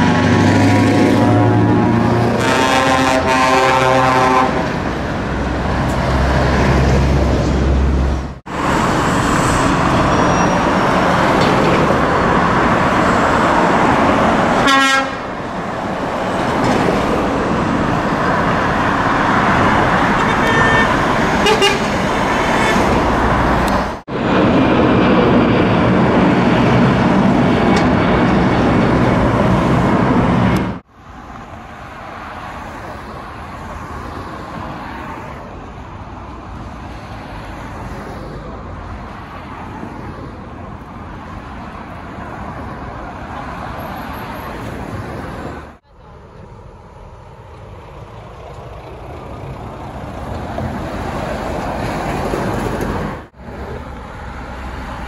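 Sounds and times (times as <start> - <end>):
heavy trucks driving past: 0.0 - 55.0
air horns: 1.1 - 4.7, 14.6 - 15.3, 20.2 - 22.9.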